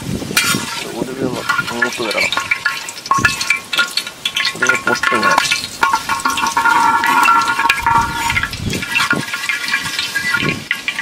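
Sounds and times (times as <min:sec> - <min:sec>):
seeds sizzling in hot oil: 0:00.0 - 0:11.0
metal spoon scraping a pot: 0:00.4 - 0:11.0.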